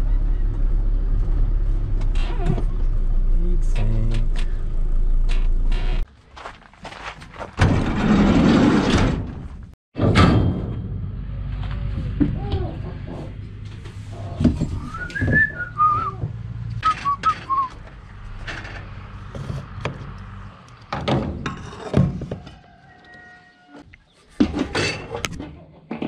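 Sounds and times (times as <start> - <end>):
person whistling: 14.8 - 16.2, 16.8 - 17.8.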